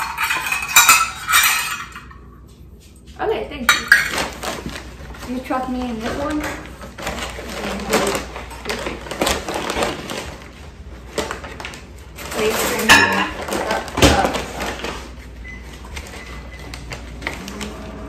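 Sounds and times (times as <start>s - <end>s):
paper bag rustling: 4.1s - 18.0s.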